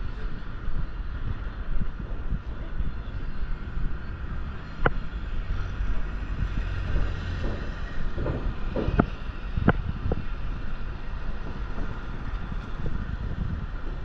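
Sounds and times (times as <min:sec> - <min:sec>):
traffic rumble: 0:00.0 - 0:14.0
sharp knocks: 0:06.4 - 0:10.2.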